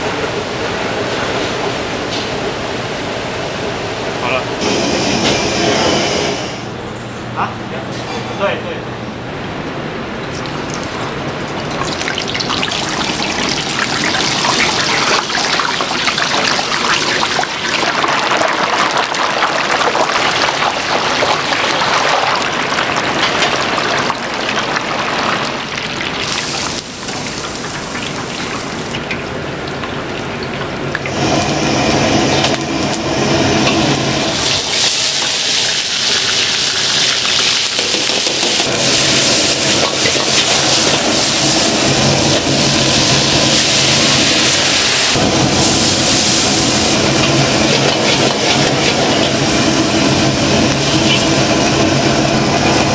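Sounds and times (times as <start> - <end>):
hot oil bubbling and crackling: 10.1 - 52.9
aromatics sizzling in a wok: 31.1 - 52.9.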